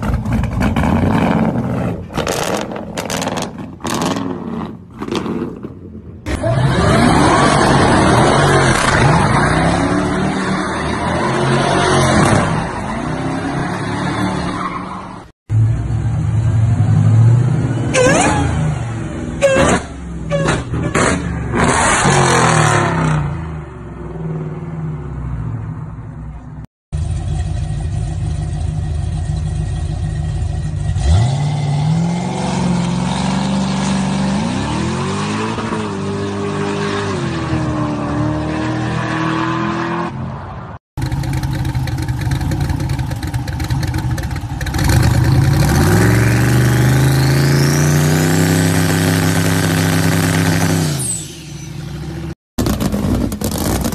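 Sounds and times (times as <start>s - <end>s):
car engine idling: 27.0s - 30.9s, 41.0s - 45.5s.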